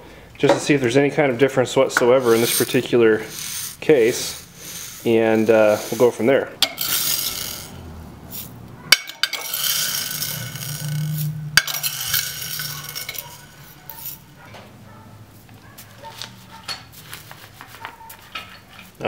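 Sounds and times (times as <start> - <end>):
bearings rubbing in cloth rag: 2.0 - 6.4, 15.6 - 18.3
ball bearings clinking against glass: 2.2 - 14.4.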